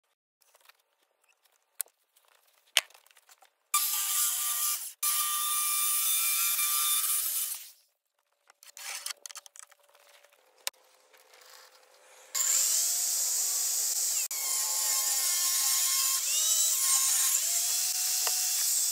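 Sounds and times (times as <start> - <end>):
power tool running on wood: 11.0 - 18.9.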